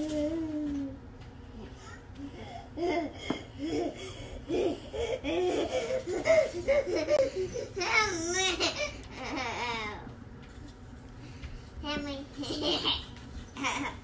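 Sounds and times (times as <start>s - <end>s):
child laughing and babbling: 2.7s - 10.1s.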